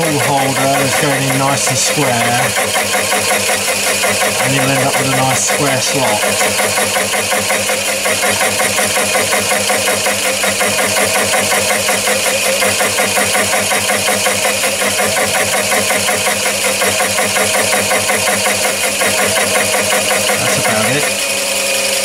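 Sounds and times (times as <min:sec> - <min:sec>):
lathe running with pulsing: 0:00.0 - 0:22.0.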